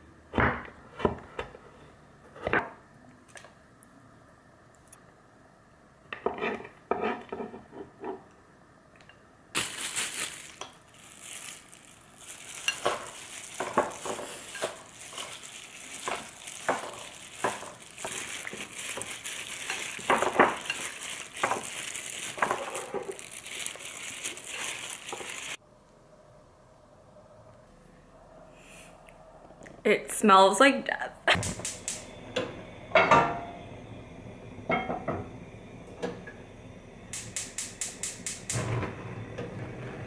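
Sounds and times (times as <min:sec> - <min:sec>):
plastic glove rustling: 0:09.6 - 0:25.6
chicken mixed in wet marinade: 0:11.1 - 0:25.6.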